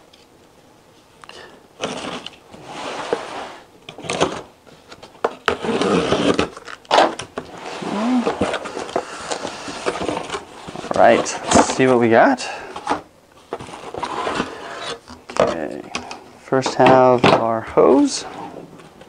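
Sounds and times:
cardboard box being opened: 5.4 - 11.8.

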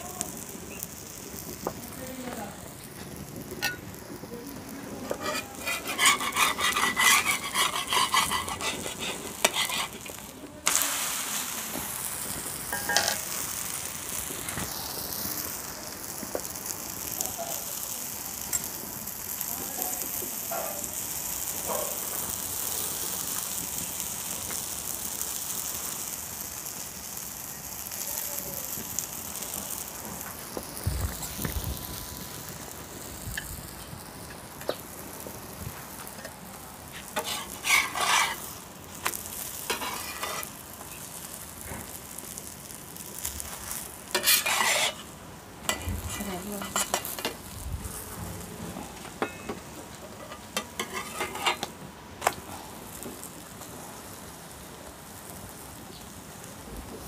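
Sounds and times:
pancake sizzling in a pan: 0.0 - 57.0
metal scraping and clinking: 3.6 - 4.0, 5.0 - 10.2, 12.7 - 13.3, 37.1 - 38.5, 39.7 - 40.5, 44.1 - 45.1, 49.1 - 51.7.

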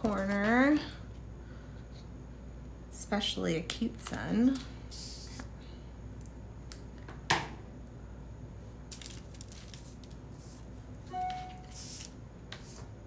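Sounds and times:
low steady hum: 0.0 - 13.0
paper rustling: 8.9 - 10.7.

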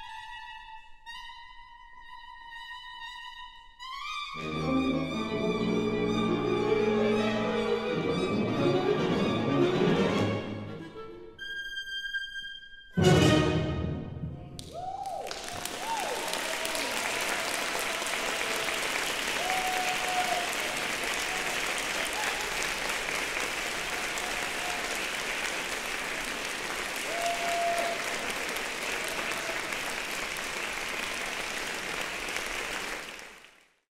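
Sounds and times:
audience applauding: 14.6 - 33.8
long cheering calls: 14.7 - 31.5.

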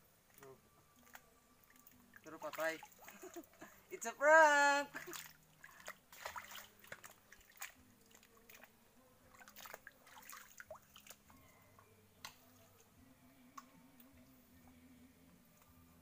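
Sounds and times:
wet mud squelching: 4.9 - 8.7.

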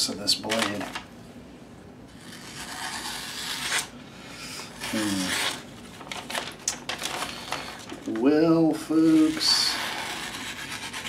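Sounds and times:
knife slicing through paper: 4.8 - 5.6, 8.9 - 11.0.

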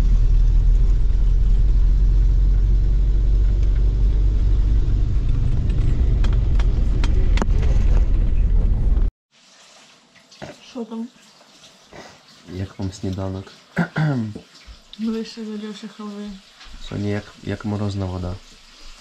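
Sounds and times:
vehicle cabin rumble: 0.0 - 9.1
sharp clicks and knocks: 5.2 - 9.1.

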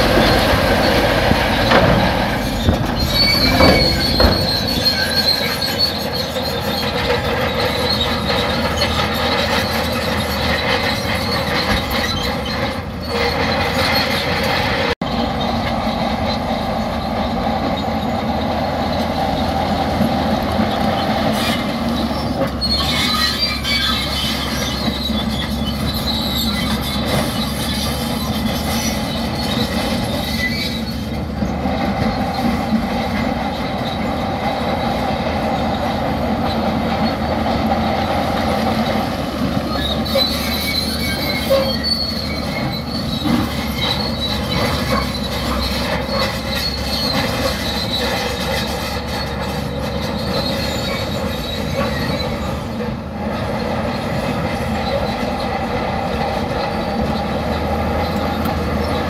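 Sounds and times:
diesel engines droning: 0.0 - 59.0
high thin metallic squeals: 0.2 - 14.6, 21.0 - 31.2, 38.8 - 52.7.

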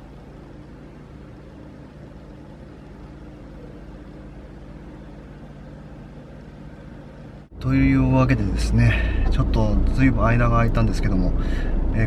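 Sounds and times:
car engine and road noise: 7.5 - 12.0.

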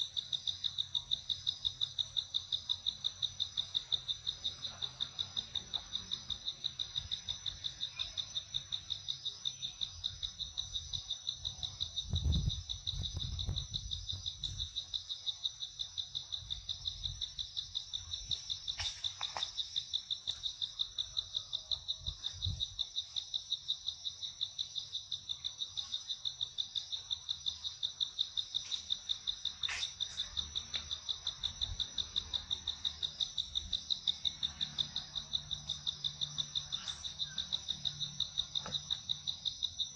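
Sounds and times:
insects trilling: 0.0 - 39.9.

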